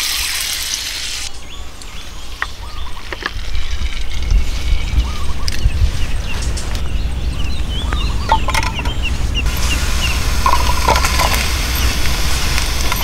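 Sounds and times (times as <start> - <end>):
bird chirps: 1.3 - 12.1
steady low rumble: 3.4 - 13.0.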